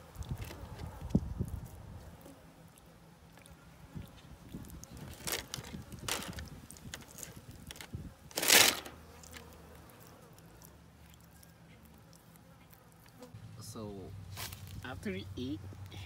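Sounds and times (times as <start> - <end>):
lizard crunching raw chicken: 2.7 - 13.3.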